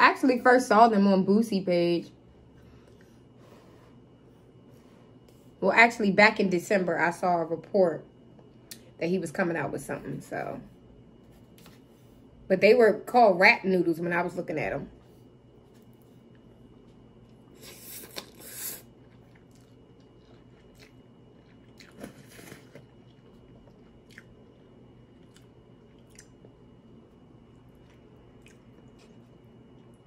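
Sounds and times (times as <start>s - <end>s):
chewing noodles: 15.8s - 30.0s
eating noises: 17.5s - 26.7s, 27.4s - 30.0s.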